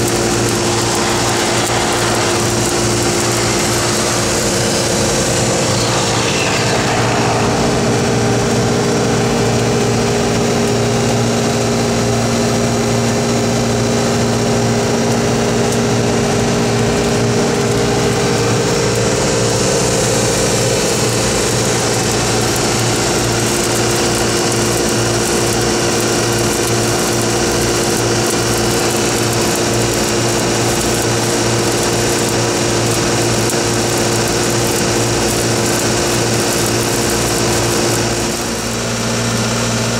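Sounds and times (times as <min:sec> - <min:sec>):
welding arc hissing: 0:00.0 - 0:09.6, 0:17.6 - 0:39.9
welding machine engine running: 0:00.0 - 0:39.9.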